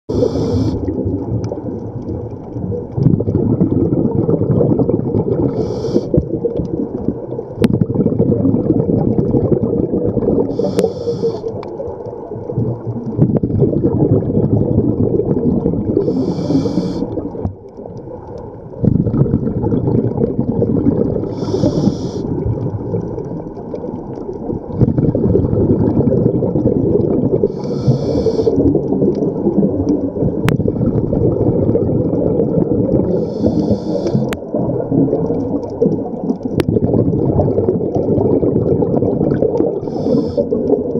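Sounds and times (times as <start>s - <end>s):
regulator inhale hiss: 0.1s - 0.9s, 5.5s - 6.2s, 10.5s - 11.7s, 16.0s - 17.2s, 21.3s - 22.3s, 27.5s - 28.7s, 33.1s - 34.4s, 39.8s - 40.6s
exhaled bubbles rumbling: 0.1s - 40.9s.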